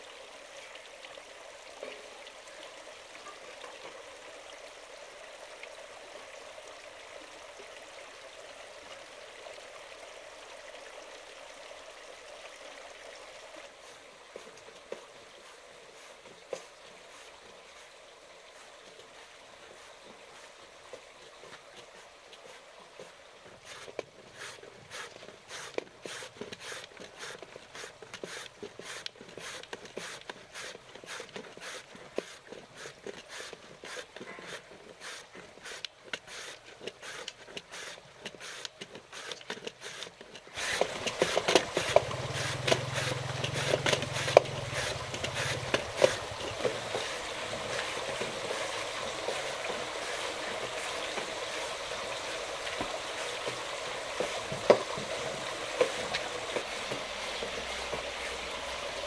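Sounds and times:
handling clicks and scrapes: 22.4s - 48.6s
oil sizzling: 40.6s - 59.0s.

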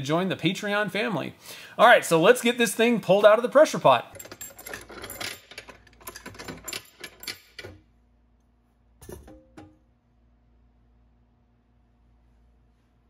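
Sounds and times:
wing-nut clamps rattling: 4.1s - 7.9s.

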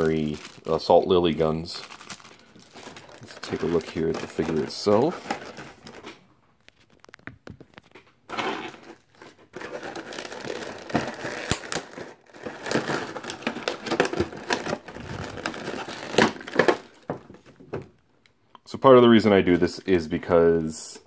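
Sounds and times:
plastic packaging crinkling: 0.0s - 17.5s.

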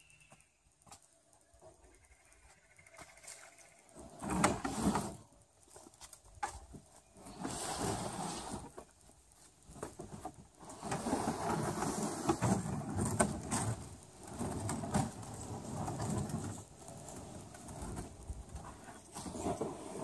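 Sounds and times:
kayak hull rumbling and scraping: 3.9s - 5.4s, 7.2s - 20.0s.

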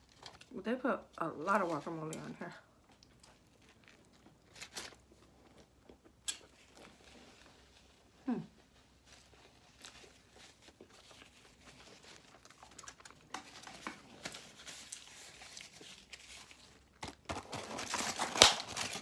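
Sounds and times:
food wrapper crinkling: 0.0s - 0.6s, 1.6s - 19.0s
soft chewing: 2.1s - 17.0s.

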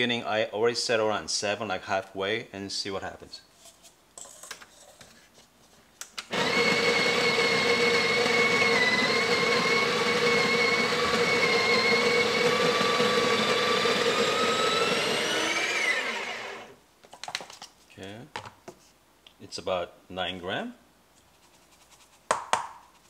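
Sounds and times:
coffee grinder grinding beans: 6.3s - 16.8s.

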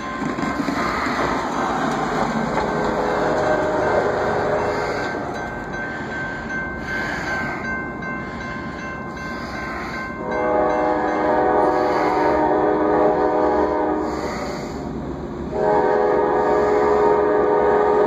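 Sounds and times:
railroad crossing bells ringing: 0.0s - 18.0s
locomotive air horn: 2.6s - 5.4s, 10.2s - 14.9s, 15.5s - 18.0s.

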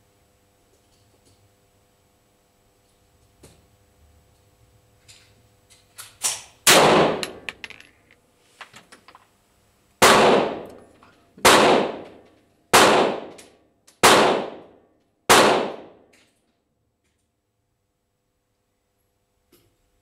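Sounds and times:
pistol shots: 6.2s - 7.5s, 10.0s - 10.7s, 11.4s - 13.4s, 14.0s - 14.7s, 15.3s - 16.0s.

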